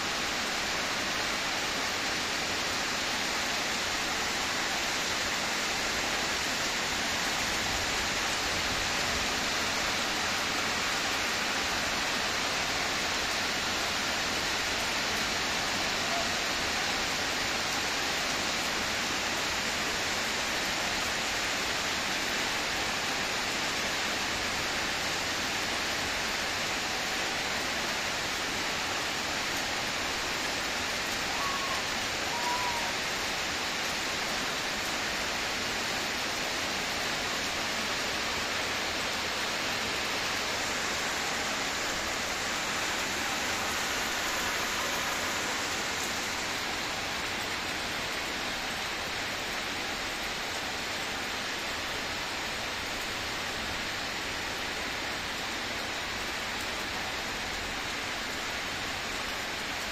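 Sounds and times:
rain on roofs and ground: 0.0 - 59.9.

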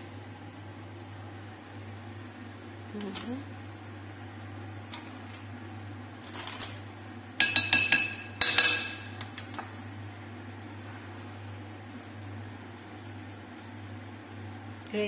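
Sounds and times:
spoon tapping glass bowl: 7.4 - 9.2.

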